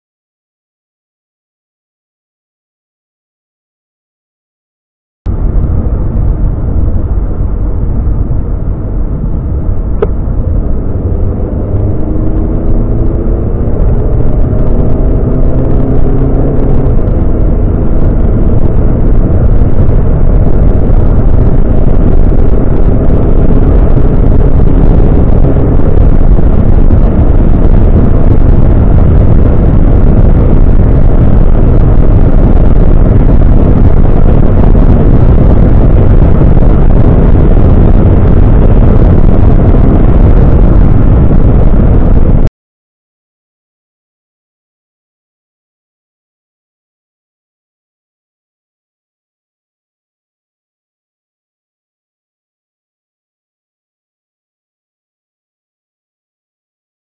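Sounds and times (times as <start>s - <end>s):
car engine accelerating: 5.3s - 42.5s
wind and road noise: 5.3s - 42.5s.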